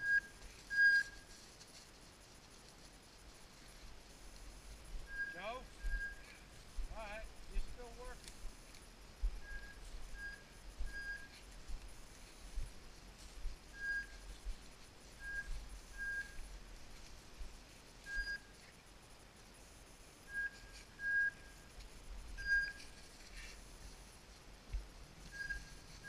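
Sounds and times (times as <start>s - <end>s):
high whistle-like beeps: 0.0s - 1.2s, 5.0s - 6.4s, 9.4s - 11.5s, 13.7s - 14.4s, 15.1s - 16.5s, 18.0s - 18.5s, 20.3s - 21.7s, 22.4s - 23.0s, 25.3s - 26.0s
footsteps in dry grass: 0.0s - 19.6s, 20.6s - 26.0s.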